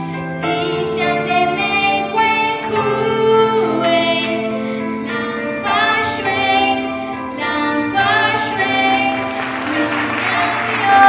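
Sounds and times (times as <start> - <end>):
several voices singing: 5.6 - 11.0
audience clapping along: 8.8 - 11.0.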